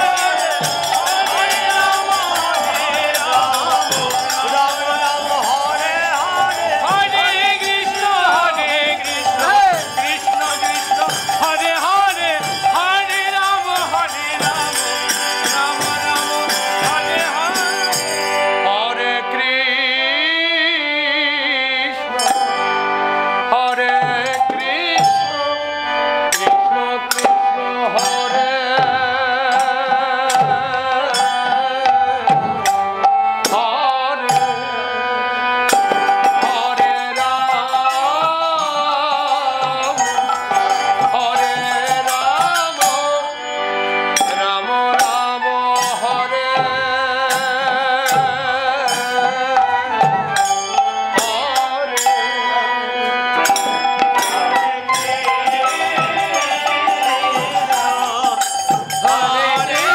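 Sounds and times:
drum strokes: 0.0s - 18.3s, 35.7s - 43.1s
harmonium sustained notes: 0.0s - 59.9s
bamboo flute melody: 59.2s - 59.9s.

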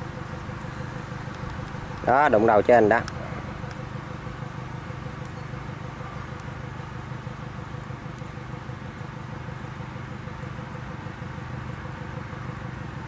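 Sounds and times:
combine harvester running: 0.0s - 13.0s
faint ticks: 3.0s - 3.8s, 5.2s - 5.4s.

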